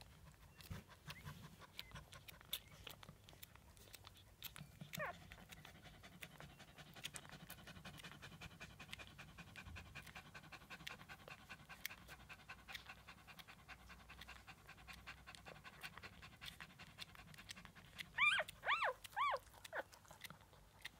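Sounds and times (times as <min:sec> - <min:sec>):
puppies panting: 0:00.0 - 0:20.9
puppies suckling clicks: 0:00.0 - 0:20.9
puppy squealing: 0:04.6 - 0:05.2, 0:18.2 - 0:20.0.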